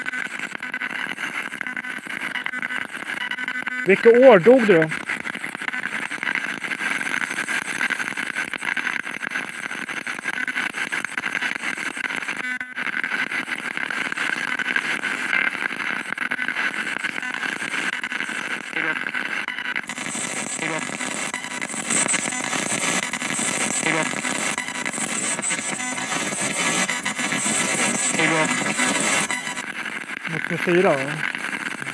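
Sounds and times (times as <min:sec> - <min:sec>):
radio static sweeping: 0:03.8 - 0:05.0, 0:16.6 - 0:31.9
snatches of broadcast voices: 0:03.8 - 0:05.0, 0:17.2 - 0:31.9.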